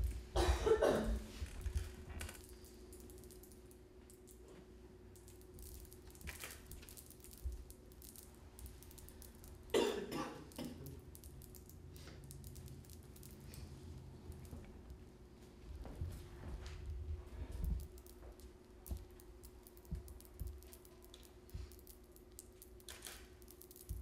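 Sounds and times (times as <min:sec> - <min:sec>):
steady low hum: 0:00.0 - 0:24.0
person coughing: 0:00.3 - 0:01.2, 0:09.7 - 0:11.0.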